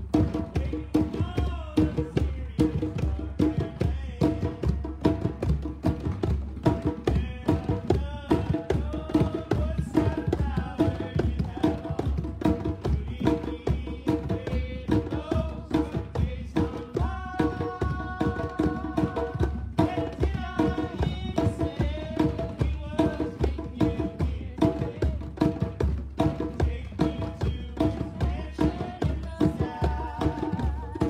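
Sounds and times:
hand drums playing: 0:00.0 - 0:31.0.

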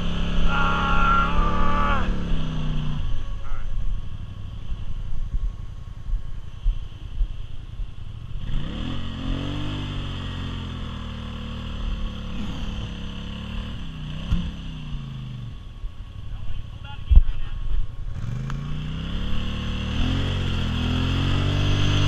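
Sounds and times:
quad engine revving: 0:00.0 - 0:04.8, 0:08.2 - 0:15.7, 0:18.1 - 0:22.0.

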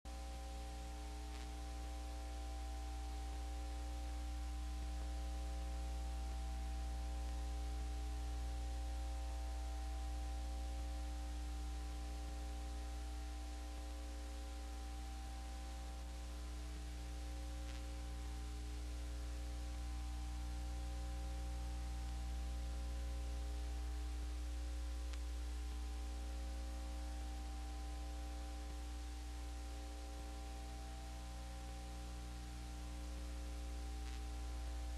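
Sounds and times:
constant hiss: 0:00.1 - 0:34.9
faint steady tones: 0:00.1 - 0:34.9
low electrical mains hum: 0:00.1 - 0:34.9
faint tick: 0:01.2 - 0:01.8, 0:17.6 - 0:18.4, 0:25.0 - 0:26.0, 0:33.9 - 0:34.4.

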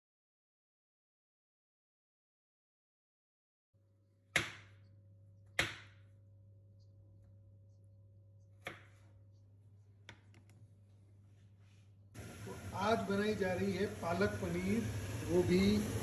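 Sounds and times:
low steady hum: 0:03.8 - 0:16.0.

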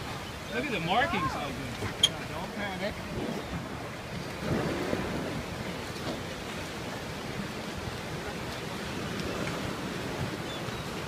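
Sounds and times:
ocean waves: 0:00.0 - 0:11.0
wind buffeting microphone: 0:00.0 - 0:11.0.

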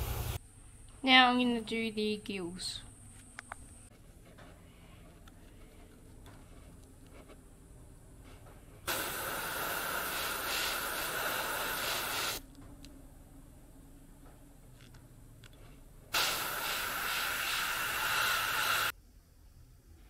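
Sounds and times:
airbrush spraying hiss: 0:08.9 - 0:12.4, 0:16.1 - 0:18.9.

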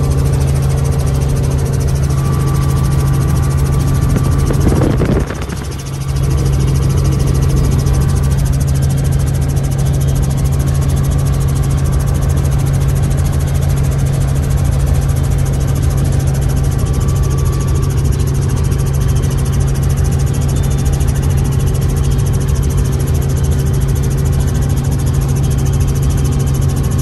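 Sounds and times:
helicopter engine and rotor drone: 0:00.0 - 0:27.0.

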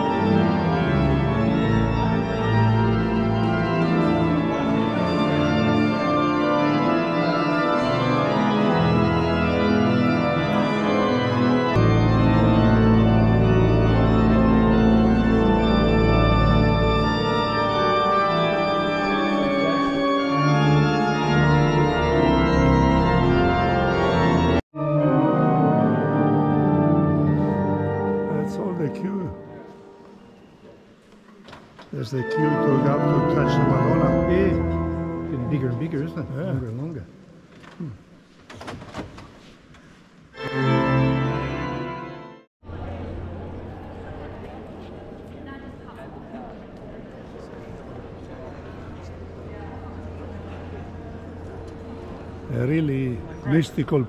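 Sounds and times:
organ playing sustained chords: 0:00.0 - 0:30.5, 0:32.0 - 0:37.2, 0:40.4 - 0:43.9, 0:49.1 - 0:54.0.

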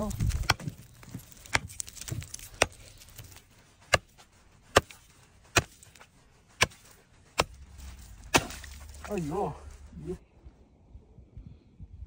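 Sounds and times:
axe chopping ice: 0:00.3 - 0:09.4.

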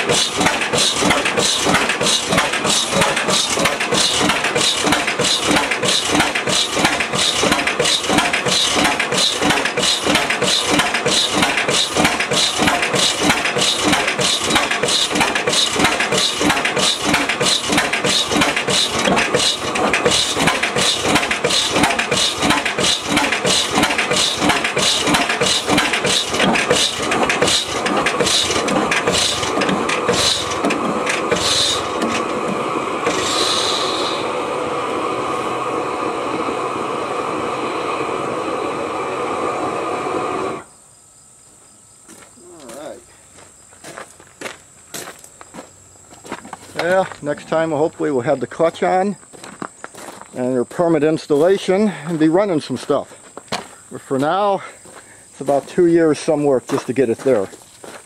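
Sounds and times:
old engine running steadily: 0:00.0 - 0:40.6
steady whine: 0:00.0 - 0:40.7.

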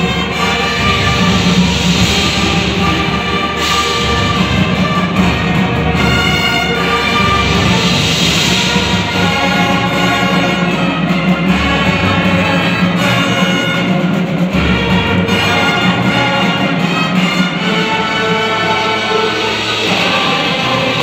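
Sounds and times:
marching band playing: 0:00.0 - 0:21.0.

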